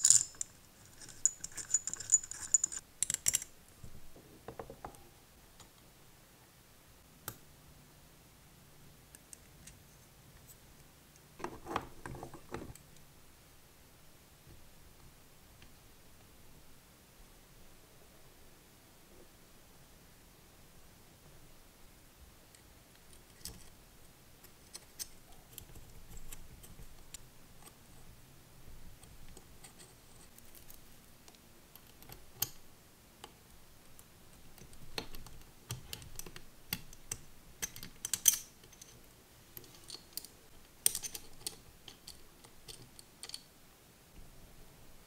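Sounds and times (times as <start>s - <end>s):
small metallic clicks and rattles: 0.0s - 3.6s, 34.0s - 43.5s.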